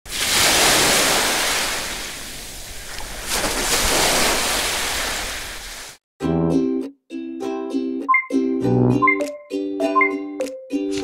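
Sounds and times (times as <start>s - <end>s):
surf waves washing in: 0.1s - 6.0s.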